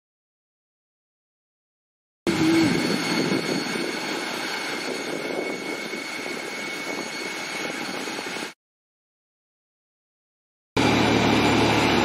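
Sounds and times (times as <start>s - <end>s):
rushing noise: 2.3s - 8.5s
jet turbine whine: 2.3s - 8.6s, 10.8s - 12.0s.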